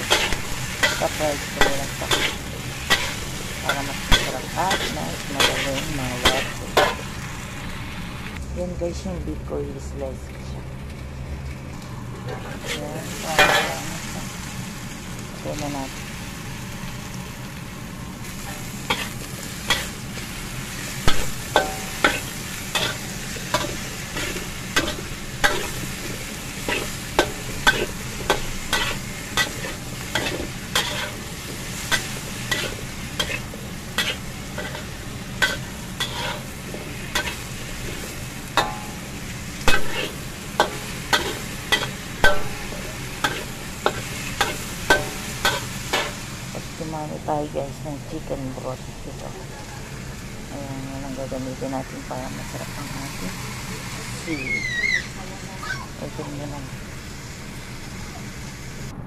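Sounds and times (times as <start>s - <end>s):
metal spoon scraping a pan: 0.0s - 7.0s, 12.3s - 14.0s, 18.4s - 20.0s, 21.0s - 46.2s
food sizzling in a pan: 0.0s - 59.0s.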